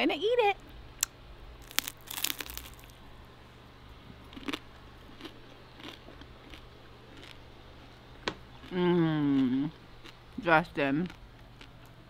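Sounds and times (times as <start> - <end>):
person crunching fried food: 1.6 - 3.0, 4.3 - 7.4.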